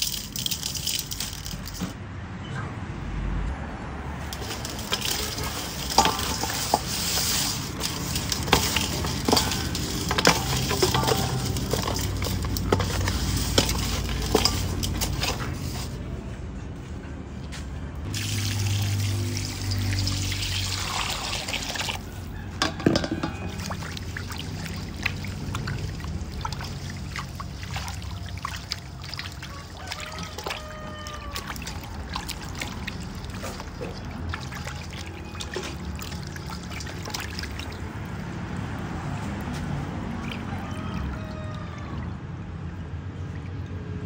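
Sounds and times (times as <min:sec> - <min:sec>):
water pouring into metal bowl: 0:00.0 - 0:01.9, 0:04.2 - 0:16.0, 0:18.1 - 0:22.0, 0:22.6 - 0:39.2
water sloshing and splashing: 0:00.0 - 0:02.0, 0:04.0 - 0:16.3, 0:18.0 - 0:44.0.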